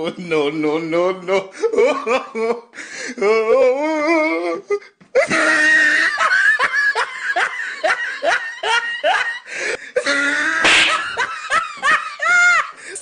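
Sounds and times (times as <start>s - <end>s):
person laughing loudly: 5.2s - 12.8s.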